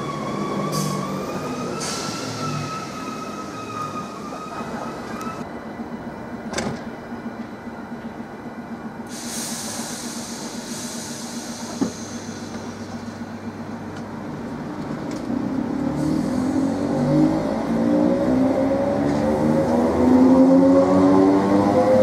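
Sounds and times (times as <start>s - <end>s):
air hiss: 9.1s - 12.9s.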